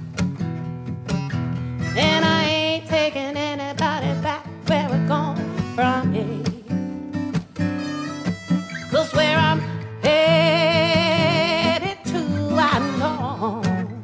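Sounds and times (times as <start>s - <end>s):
plucked acoustic guitar: 0.0s - 14.0s
person singing with vibrato: 1.9s - 6.9s, 7.8s - 14.0s.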